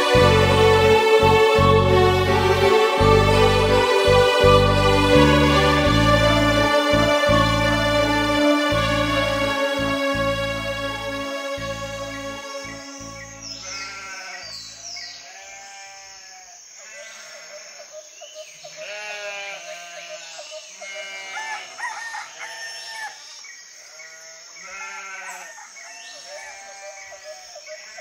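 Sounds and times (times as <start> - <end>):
keyboard chord: 0.0 - 13.8
faint music drone: 0.0 - 14.2.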